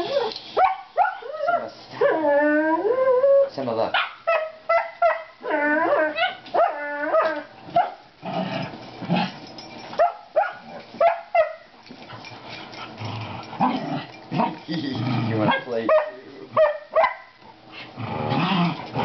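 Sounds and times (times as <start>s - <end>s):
dogs yipping in play: 0.0s - 2.2s, 4.0s - 8.0s, 9.7s - 14.6s
dog barks: 0.6s - 1.7s, 3.9s - 5.4s, 7.7s - 8.0s, 10.0s - 11.7s, 15.5s - 17.4s.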